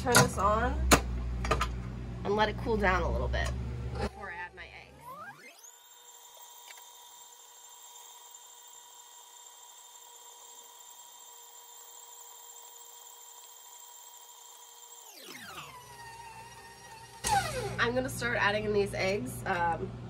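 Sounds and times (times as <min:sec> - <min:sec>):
stand mixer motor whine: 0:03.6 - 0:18.0.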